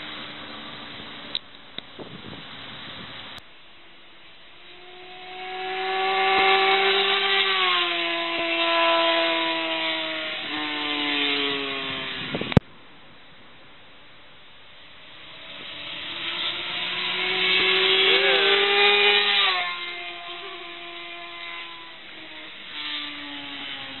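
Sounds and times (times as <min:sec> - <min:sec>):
motorcycle engine passing at high revs: 0:04.3 - 0:12.6, 0:14.8 - 0:24.0.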